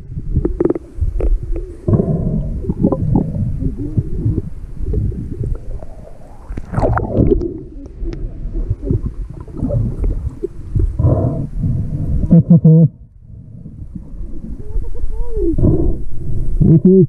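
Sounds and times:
muffled pitched sound: 0:00.0 - 0:11.4
underwater water gurgling and bubbles: 0:00.0 - 0:17.0.

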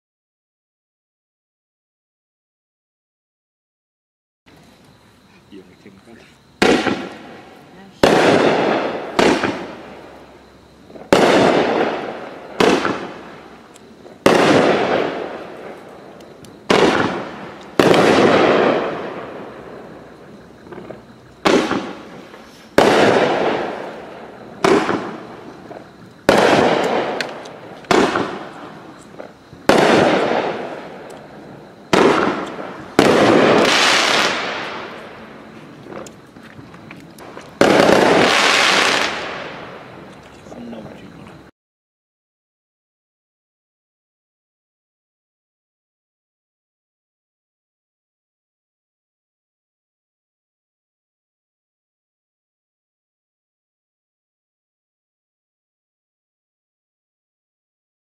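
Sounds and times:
fireworks aerial bursts: 0:04.5 - 0:41.5.

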